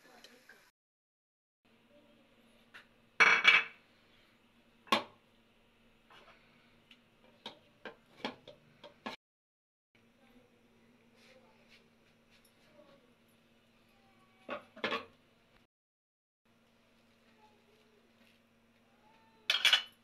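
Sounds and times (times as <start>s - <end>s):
dishes clattering and clinking: 3.2s - 3.8s, 7.3s - 9.2s, 14.5s - 15.2s, 19.5s - 20.0s.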